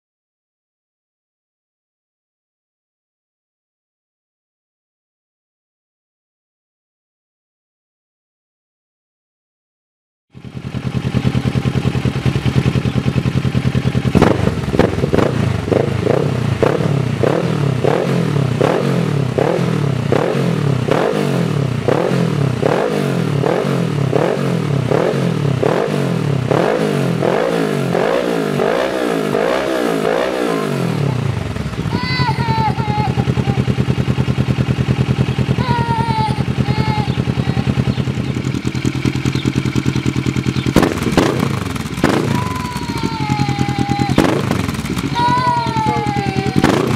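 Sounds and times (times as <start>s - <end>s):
motorcycle engine idling: 10.3s - 46.9s
engine revving in throttle blips: 10.4s - 46.9s.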